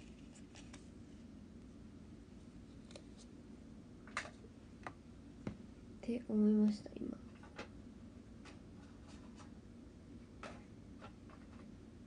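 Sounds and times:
soft clicks and rustles of handling: 0.0 - 1.0, 2.7 - 3.3, 7.1 - 7.8.

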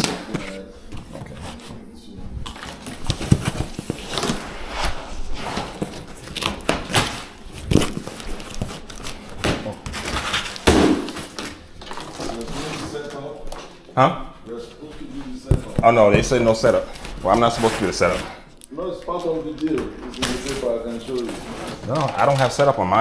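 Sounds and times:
boxes knocking and bumping: 0.0 - 1.8, 2.4 - 4.6, 5.4 - 13.0, 15.4 - 18.4
cardboard scraping and rubbing: 0.0 - 13.2, 15.6 - 18.4, 19.2 - 22.6.

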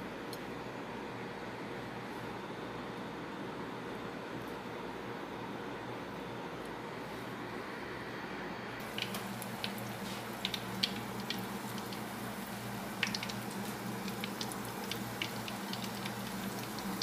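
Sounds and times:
low steady hum: 0.0 - 17.0
shrimp sizzling in hot oil: 8.8 - 17.0.

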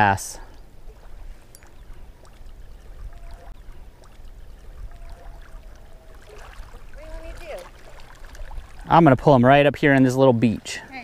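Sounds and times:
small waves lapping: 0.0 - 11.0
wind rumbling on microphone: 0.7 - 9.5
faint ticks: 1.5 - 6.1.

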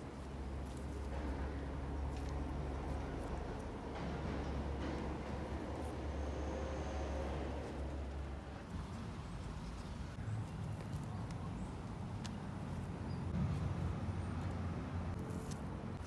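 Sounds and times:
low uneven rumbling: 0.0 - 10.3.

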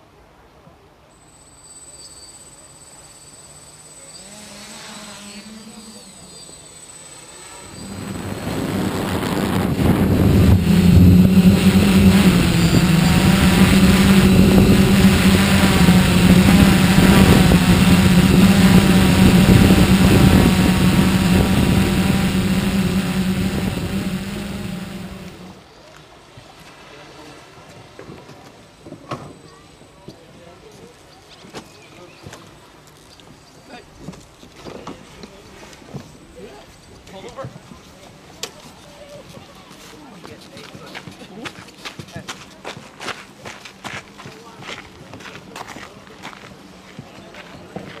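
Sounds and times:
drone propellers humming: 6.8 - 25.6.

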